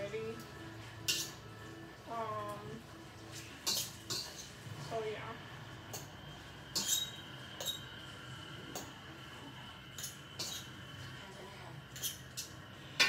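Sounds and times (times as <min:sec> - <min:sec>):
utensil clinking against a pan: 0:01.0 - 0:01.4, 0:03.6 - 0:04.6, 0:06.7 - 0:07.9, 0:09.9 - 0:10.7.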